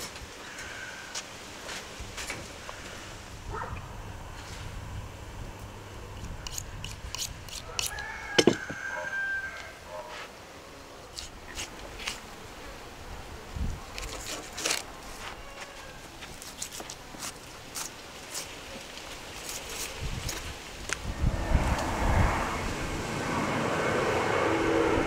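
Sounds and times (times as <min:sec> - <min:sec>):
knife slicing raw meat: 0:06.2 - 0:08.7.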